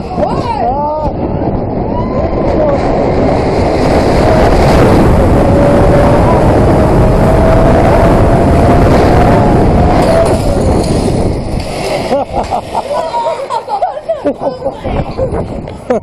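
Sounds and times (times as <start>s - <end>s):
wind rushing over microphone: 0.0s - 16.0s
long steady tone: 1.4s - 10.7s.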